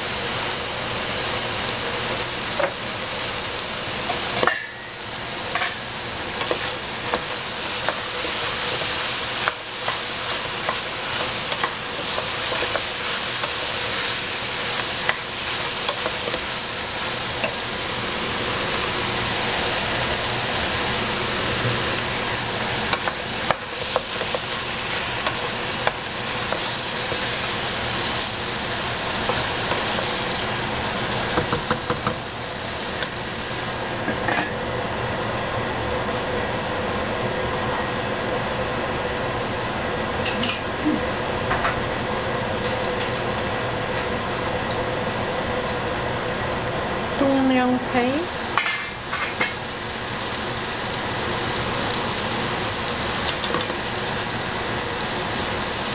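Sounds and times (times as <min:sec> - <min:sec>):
food sizzling in a pan: 0:00.0 - 0:34.4, 0:47.2 - 0:55.9.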